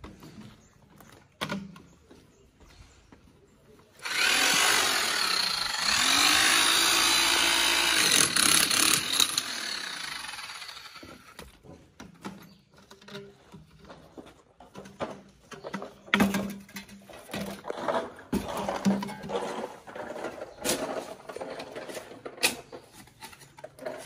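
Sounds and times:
electric power tool running: 0:04.0 - 0:11.4.

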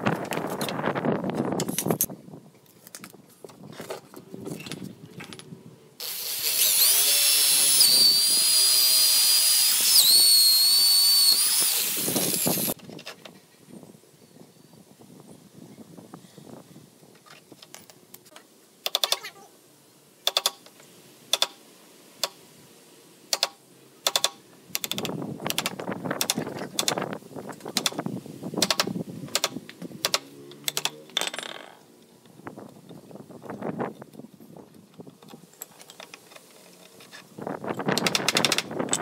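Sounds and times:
sharp clicks: 0:18.8 - 0:19.3, 0:20.2 - 0:20.7, 0:21.3 - 0:21.6, 0:23.3 - 0:27.0, 0:27.6 - 0:28.0, 0:28.6 - 0:31.1, 0:37.9 - 0:39.0.

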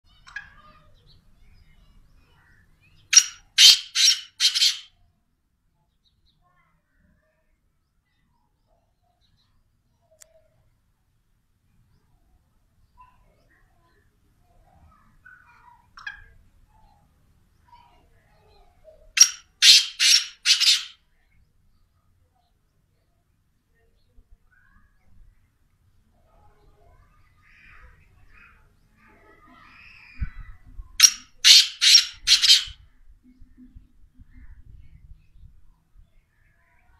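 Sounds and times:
bird harsh rasping calls: 0:03.0 - 0:04.9, 0:19.1 - 0:21.0, 0:31.0 - 0:32.8.

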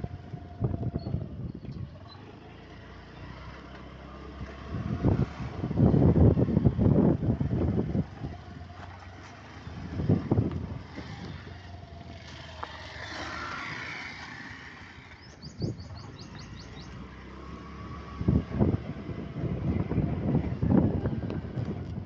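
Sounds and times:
vehicle rumble: 0:00.0 - 0:22.0
wind on microphone: 0:18.1 - 0:22.0.

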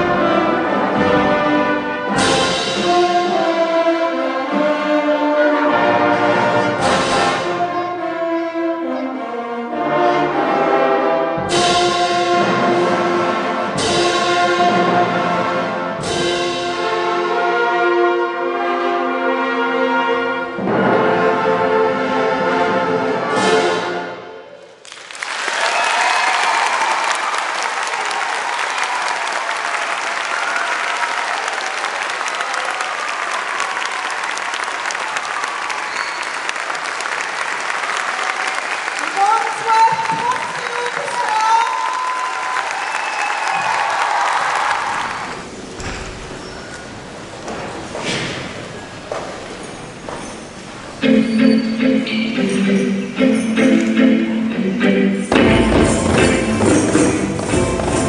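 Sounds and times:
orchestra playing loud chords: 0:00.0 - 0:24.5, 0:51.0 - 0:58.0
audience applauding: 0:24.7 - 0:45.8.

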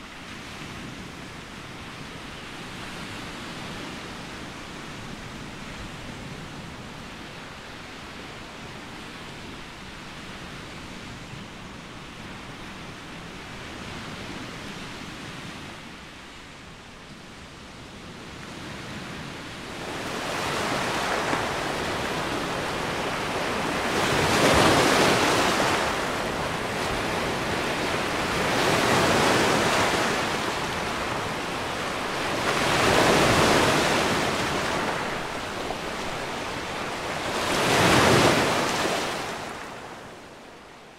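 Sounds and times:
waves breaking on a pebble beach: 0:19.6 - 0:40.2.

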